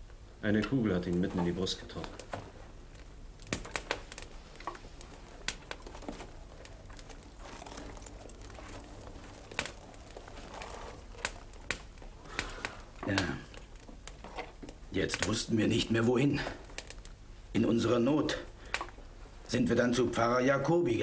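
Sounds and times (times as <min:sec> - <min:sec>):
steady low hum: 0:00.0 - 0:20.0
sharp clicks and crackles: 0:01.9 - 0:15.5, 0:16.6 - 0:17.2.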